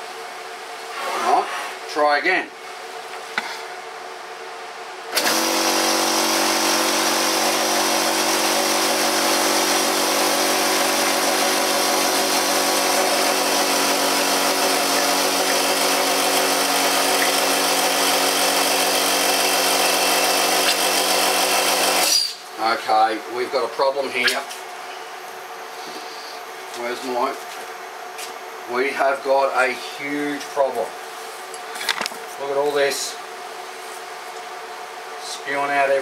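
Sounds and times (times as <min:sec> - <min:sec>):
air compressor running: 0:05.1 - 0:27.6.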